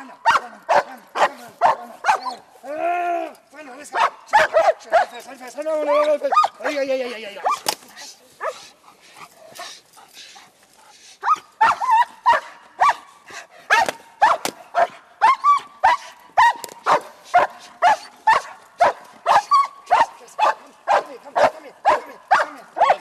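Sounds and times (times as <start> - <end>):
dog barking: 0.2 - 2.4, 3.9 - 5.2, 6.3 - 6.8, 7.4 - 7.6, 8.4 - 8.7, 11.2 - 13.1, 13.7 - 23.0.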